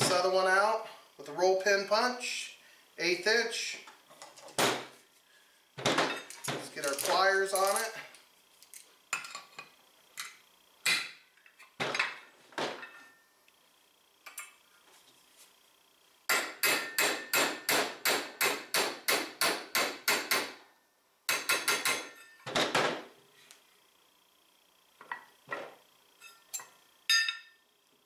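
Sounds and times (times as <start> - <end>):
hammer tapping metal punch: 21.3 - 22.4.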